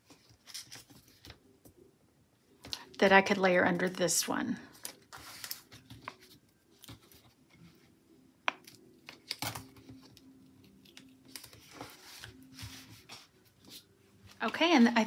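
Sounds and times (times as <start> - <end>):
paper rustling: 4.7 - 7.8, 9.0 - 15.0.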